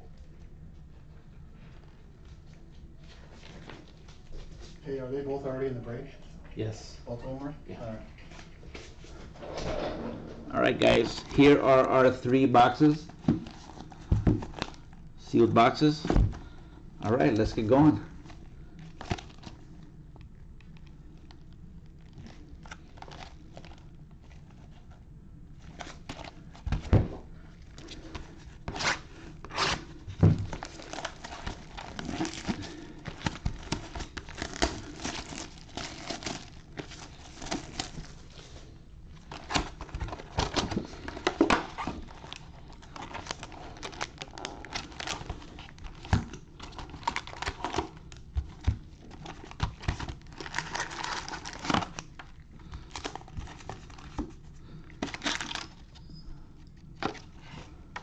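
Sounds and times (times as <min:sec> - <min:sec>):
foil packs crinkling: 0:10.8 - 0:19.9, 0:20.8 - 0:24.9, 0:25.6 - 0:56.1
wrapping tearing and crumpling: 0:17.4 - 0:20.0, 0:20.7 - 0:25.0, 0:27.5 - 0:56.0.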